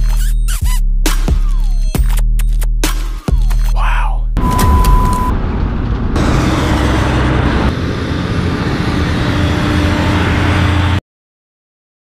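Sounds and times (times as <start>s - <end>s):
diesel trucks passing on gravel: 4.6s - 11.0s.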